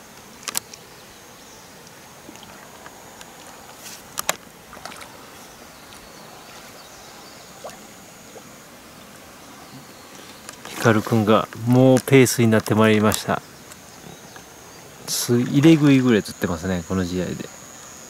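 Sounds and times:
light water splashing: 1.8 - 12.7.

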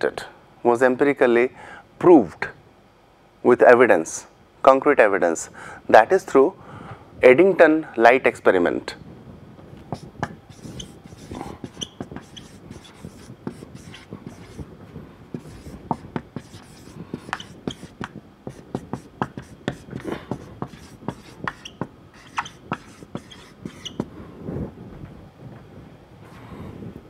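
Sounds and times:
marker pen writing on whiteboard: 9.9 - 14.7, 15.3 - 24.1.

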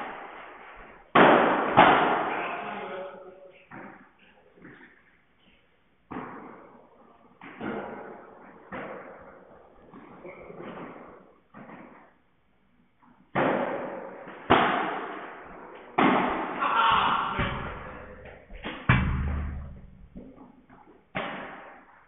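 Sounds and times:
ball rebounding off glass walls: 6.1 - 6.8, 7.4 - 12.2, 13.3 - 22.0
padel ball hits: 13.3 - 20.5.

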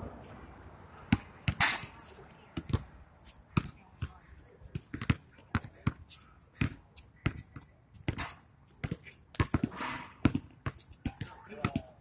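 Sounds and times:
basketball bouncing on hard court: 2.6 - 2.9, 3.6 - 6.0, 6.6 - 12.0.

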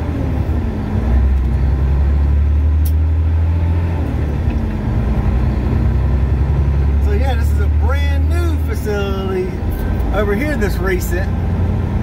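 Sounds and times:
diesel truck engine drone: 0.0 - 12.0
brief click: 2.8 - 3.0.

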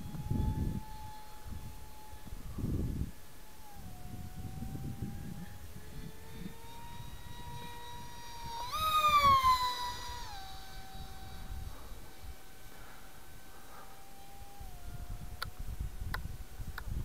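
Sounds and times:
electric motor propeller whine: 0.0 - 17.0
wind rumble on microphone: 0.0 - 17.0.

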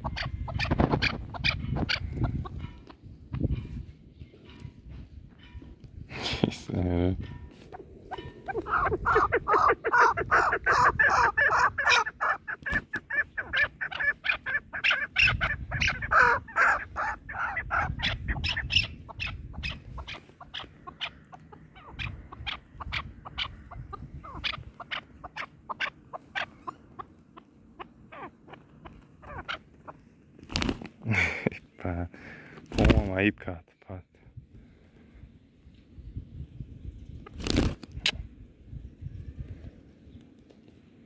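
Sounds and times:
partridges calling: 7.4 - 30.0.

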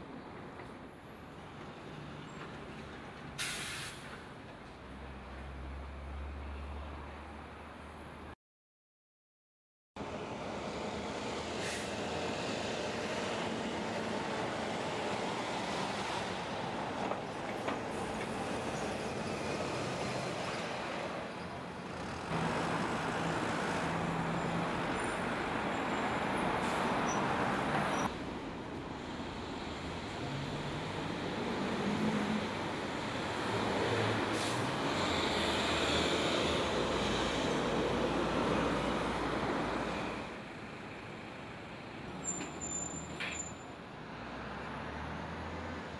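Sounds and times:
passing traffic: 0.0 - 8.4, 10.0 - 45.9
vehicle engine pulling away: 44.2 - 45.8.

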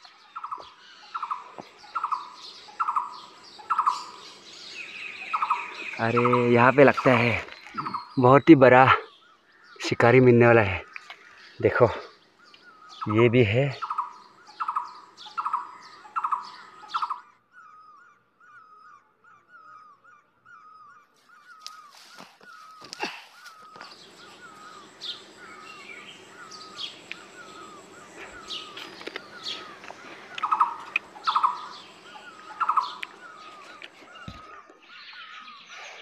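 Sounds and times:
high falling bird chirps: 0.0 - 36.0
bird curling note: 21.3 - 35.6
harsh buzzy bird squawks: 22.6 - 35.2.

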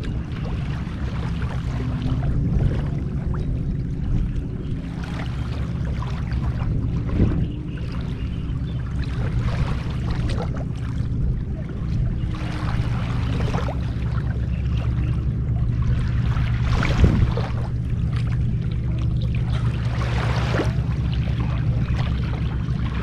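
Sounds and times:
steady low hum: 0.0 - 23.0
water splashing and sloshing: 0.0 - 23.0.

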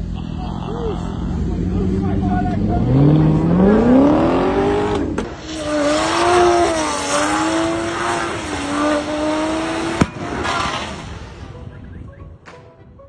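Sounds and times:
car engine at high revs: 0.0 - 11.5
car engine rising in pitch: 0.0 - 11.7
sharp crack: 9.9 - 11.5.

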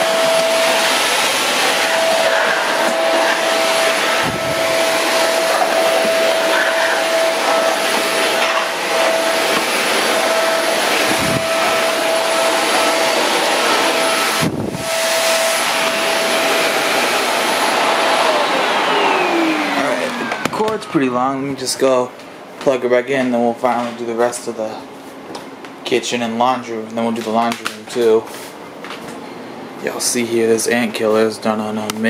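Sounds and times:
stick vacuum cleaner running: 0.0 - 22.8.

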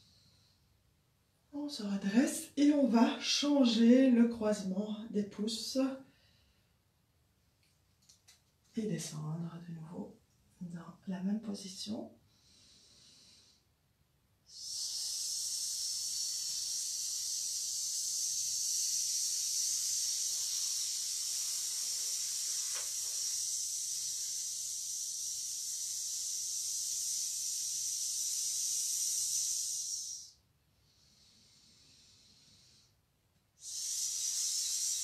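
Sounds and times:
woman hissing sss: 14.5 - 30.4, 33.6 - 35.0.

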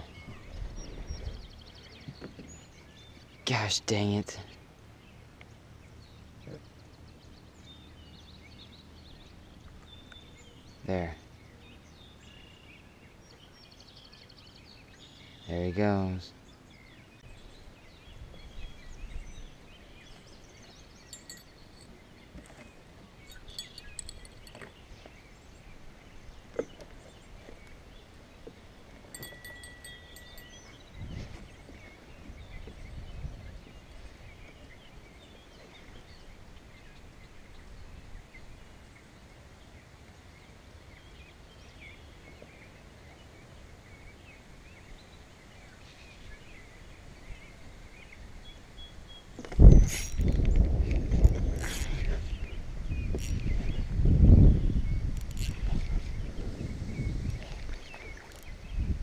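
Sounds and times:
faint high bird chirps: 23.2 - 24.8, 29.1 - 33.0.

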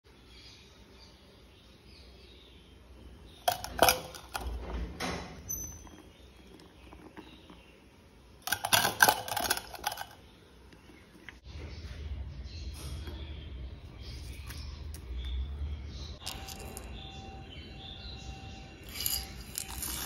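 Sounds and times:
spoon clattering in steel bowl: 8.5 - 10.2.

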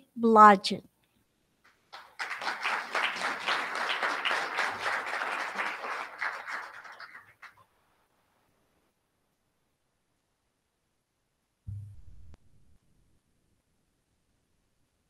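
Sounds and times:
audience applauding: 1.9 - 7.6.

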